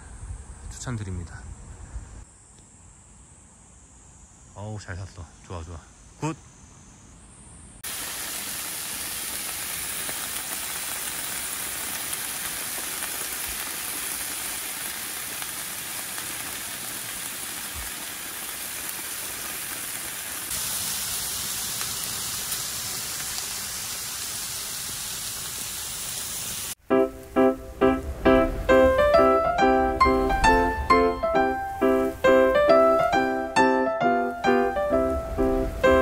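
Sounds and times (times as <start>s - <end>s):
meat sizzling on a griddle: 7.8s - 26.8s.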